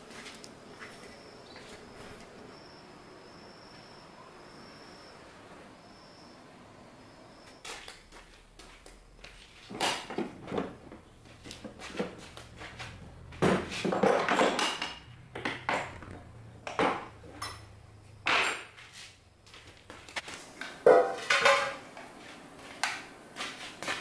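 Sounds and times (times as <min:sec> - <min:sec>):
metal tools clattering: 0:20.9 - 0:21.8.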